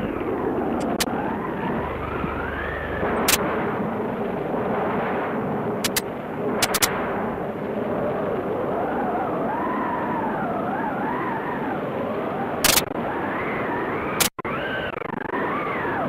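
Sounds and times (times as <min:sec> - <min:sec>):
rain rushing: 0:00.0 - 0:16.0
wind howling: 0:00.0 - 0:16.0
sharp cracks: 0:02.0 - 0:04.4, 0:05.0 - 0:07.7, 0:12.6 - 0:13.0.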